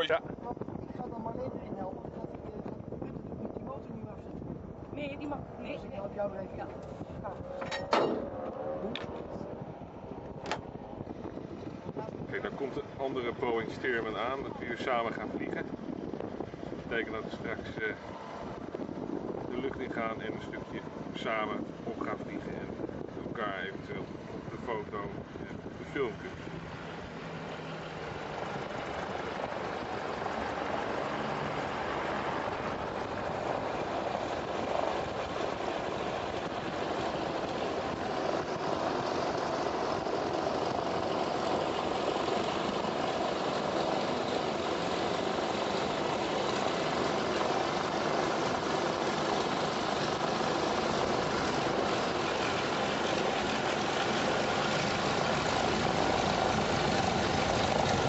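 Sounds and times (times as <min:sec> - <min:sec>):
biplane engine idling: 0:20.4 - 0:58.0.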